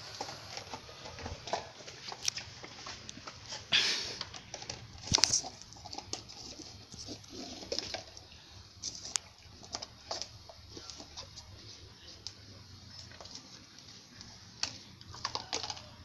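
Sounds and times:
cup scraping on tiles: 0:00.0 - 0:11.4
dog eating from cup: 0:00.0 - 0:16.0.

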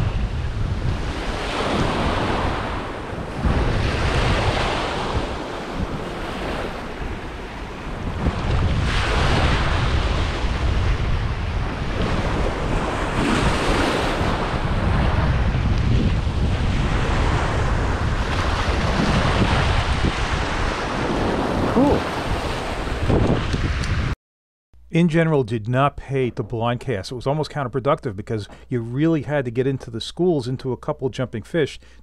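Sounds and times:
small waves washing on beach: 0:00.0 - 0:23.8
wind buffeting microphone: 0:00.0 - 0:24.2.

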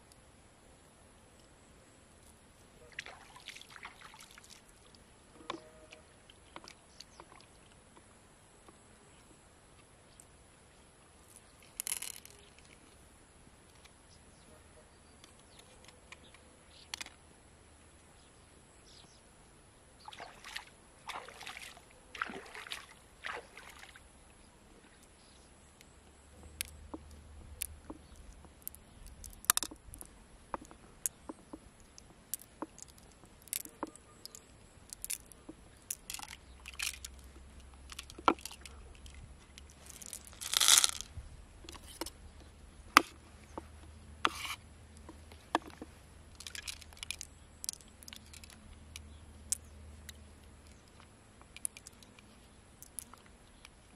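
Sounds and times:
knife scraping shell: 0:44.2 - 0:44.6.

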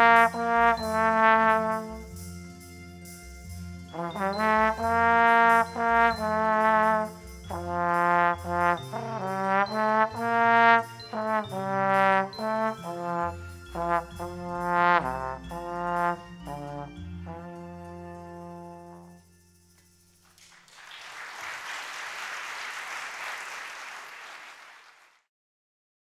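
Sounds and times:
slide trombone melody: 0:00.0 - 0:19.5.

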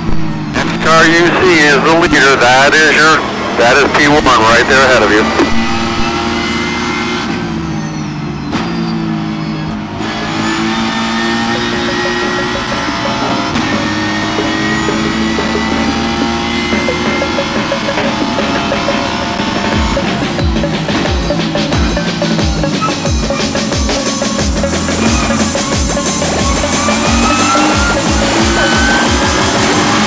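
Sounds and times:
race car engine at speed: 0:00.0 - 0:30.0
background music: 0:10.2 - 0:30.0.

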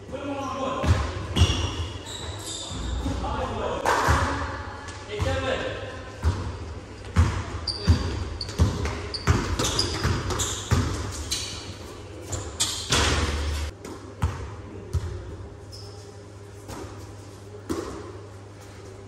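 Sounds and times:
sneakers squeaking on floor: 0:00.4 - 0:03.4, 0:06.2 - 0:13.7, 0:14.3 - 0:17.1
basketball bouncing on court: 0:00.8 - 0:01.8, 0:06.2 - 0:11.2, 0:12.9 - 0:15.2.

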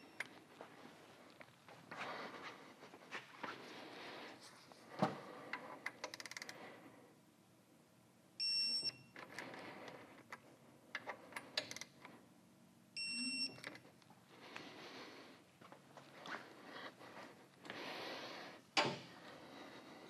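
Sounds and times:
electronic beep: 0:13.0 - 0:13.6.

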